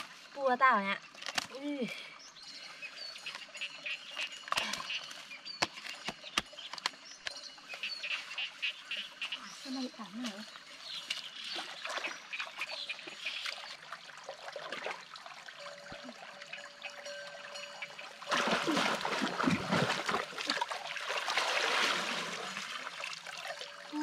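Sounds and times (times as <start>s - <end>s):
stream water splashing: 3.2s - 24.0s
water pouring through basket: 18.0s - 24.0s.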